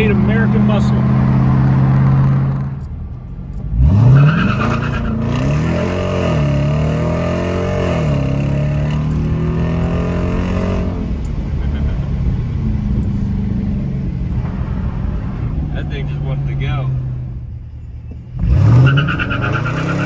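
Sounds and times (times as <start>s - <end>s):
car engine revving in cabin: 3.5s - 11.4s.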